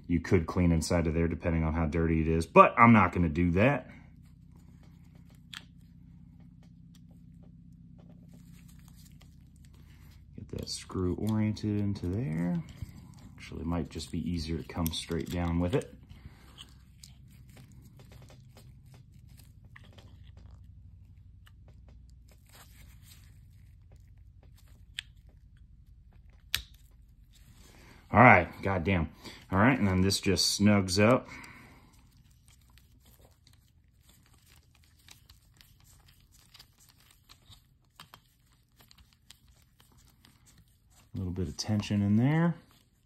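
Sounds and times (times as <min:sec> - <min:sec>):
rustling of gloves: 0:00.0 - 0:43.0
small clicks of plastic and metal parts: 0:23.9 - 0:27.1.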